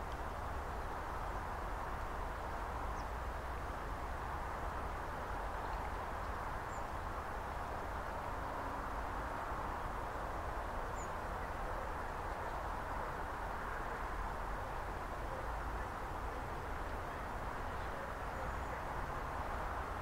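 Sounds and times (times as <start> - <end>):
outdoor background noise: 0.0 - 20.0.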